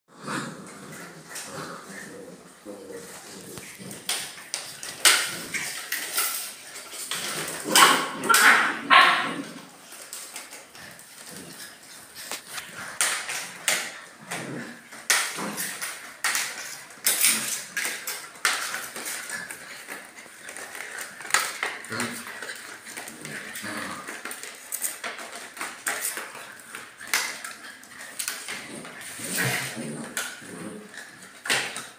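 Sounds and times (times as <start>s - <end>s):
paws clicking on tile floor: 0.6s - 31.9s.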